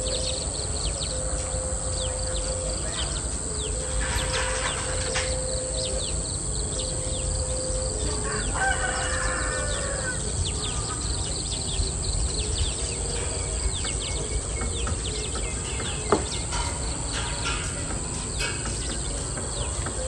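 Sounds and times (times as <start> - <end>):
small birds chirping: 0.0 - 20.0
rooster crowing: 7.0 - 11.2.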